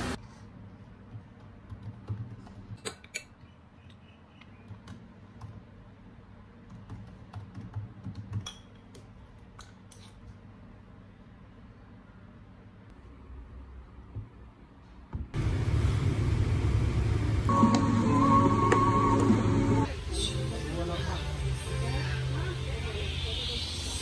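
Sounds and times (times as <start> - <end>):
laptop keyboard typing: 1.0 - 2.8, 6.6 - 8.5.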